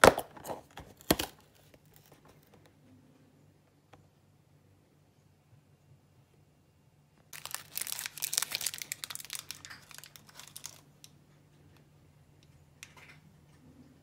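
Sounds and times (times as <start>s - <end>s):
plastic wrapper crinkling: 7.3s - 11.2s.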